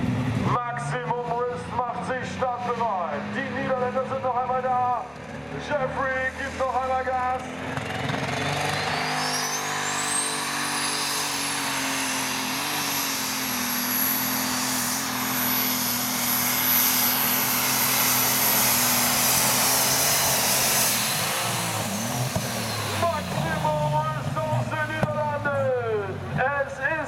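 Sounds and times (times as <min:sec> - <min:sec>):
diesel engine running flat out: 0:00.0 - 0:27.0.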